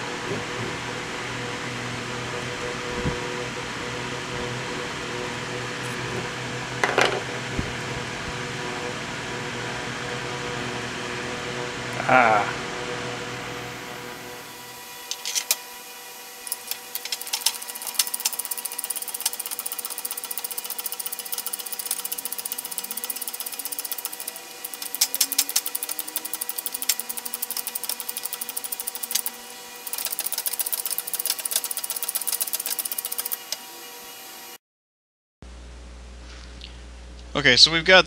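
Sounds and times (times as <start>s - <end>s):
rapid metallic clicking: 16.5s - 33.6s.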